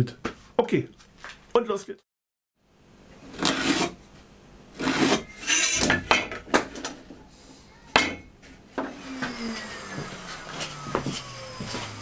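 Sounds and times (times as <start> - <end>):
try square scraping on wood: 3.4 - 4.0, 4.8 - 5.8.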